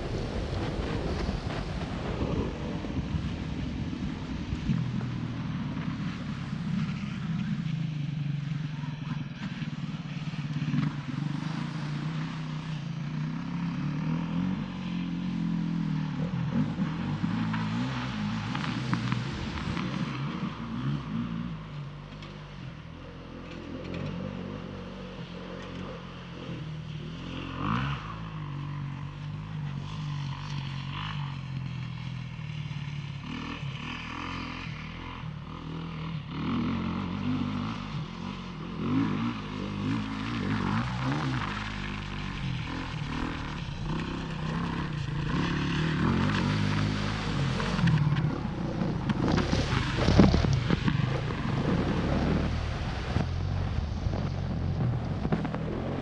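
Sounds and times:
motocross bike engine revving: 0:22.9 - 0:56.0.

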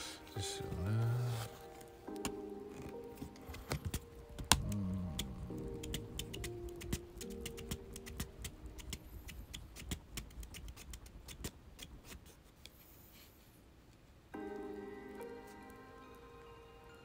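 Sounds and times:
soft background music: 0:00.0 - 0:10.6, 0:14.3 - 0:17.0.

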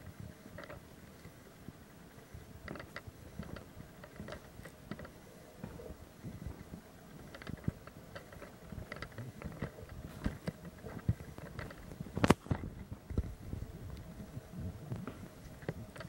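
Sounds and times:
camera handling noise: 0:07.2 - 0:13.3.

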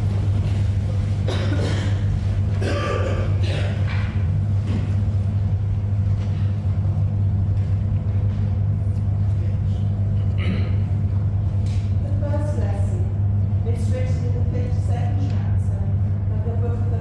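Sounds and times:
people rustling and shuffling: 0:00.0 - 0:02.6
steady low hum: 0:00.0 - 0:17.0.

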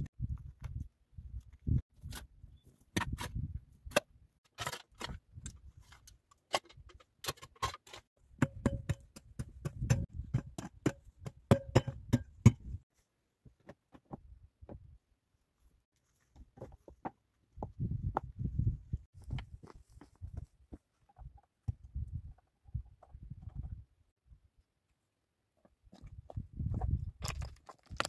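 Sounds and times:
gravel clicking under hands and boots: 0:25.6 - 0:28.0.

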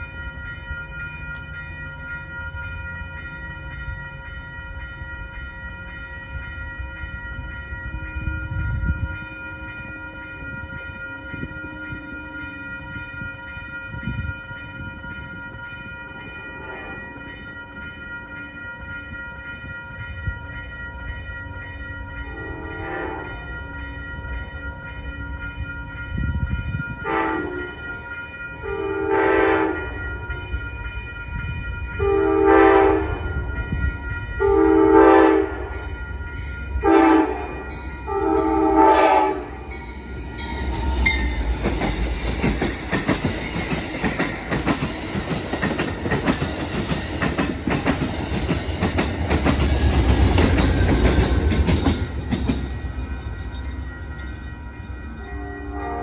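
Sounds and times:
crossing warning bell ringing: 0:00.0 - 0:56.0
train wheels rumbling on rails: 0:00.0 - 0:56.0
train horn blasts: 0:16.5 - 0:17.2, 0:22.3 - 0:23.5, 0:27.0 - 0:28.0, 0:28.6 - 0:30.4, 0:32.0 - 0:33.4, 0:34.4 - 0:35.8, 0:36.8 - 0:39.8, 0:55.1 - 0:56.0.

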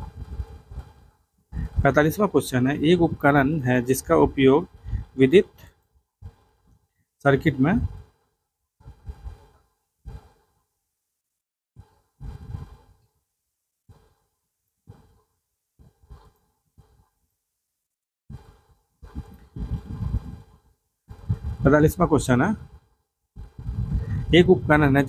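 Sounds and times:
man breathing and sighing: 0:22.6 - 0:24.4.

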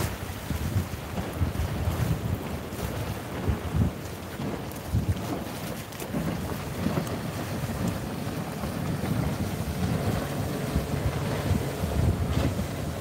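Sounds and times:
wind across microphone: 0:00.0 - 0:13.0.

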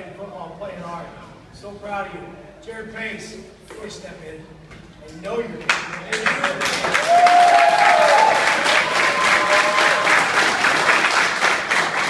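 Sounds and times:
team clapping and cheering: 0:05.6 - 0:12.0.

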